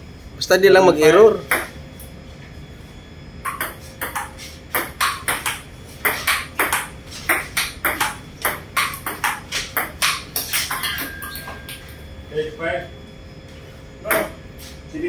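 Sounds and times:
table tennis ball clicking off paddles: 3.5s - 11.8s.

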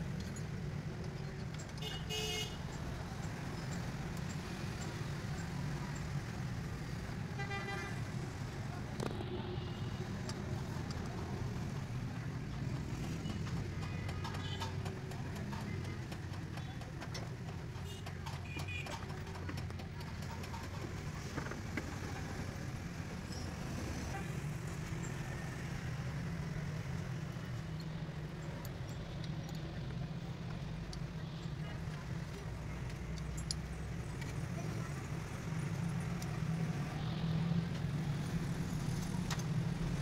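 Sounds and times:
light clicks and knocks: 10.2s - 22.1s.

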